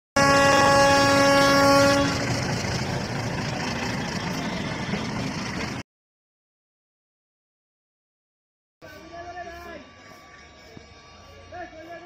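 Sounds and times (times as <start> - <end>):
train horn: 0.2 - 2.5, 8.9 - 12.0
train moving: 0.2 - 5.8, 8.8 - 12.0.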